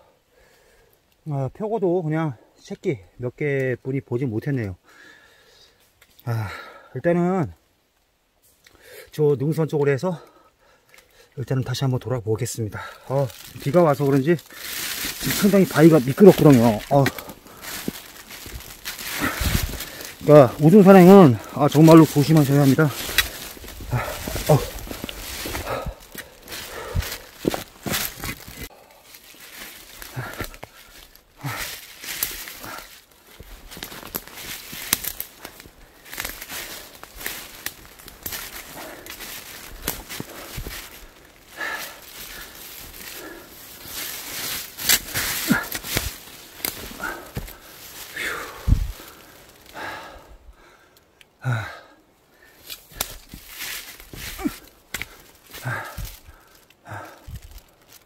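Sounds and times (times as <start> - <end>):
person breathing heavily: 0.0 - 1.0, 4.8 - 7.0, 8.7 - 9.1, 10.2 - 11.4, 12.7 - 57.9
footsteps on leaves and stones: 12.7 - 50.1, 52.5 - 58.0
brushing against branches: 12.9 - 49.8, 52.5 - 58.0.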